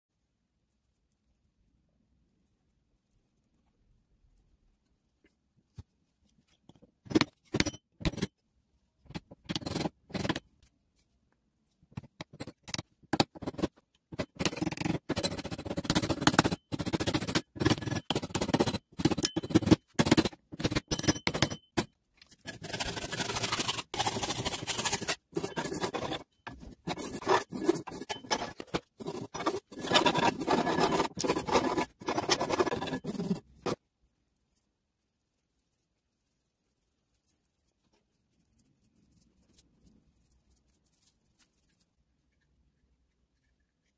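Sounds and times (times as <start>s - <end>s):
hand tool scraping wood: 22.5s - 33.8s.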